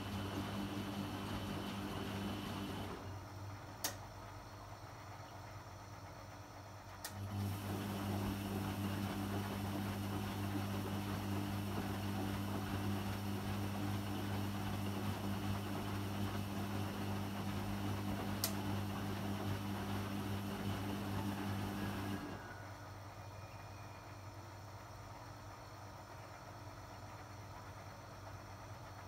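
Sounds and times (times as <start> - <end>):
washing machine motor humming: 0.0 - 4.3, 6.5 - 23.0.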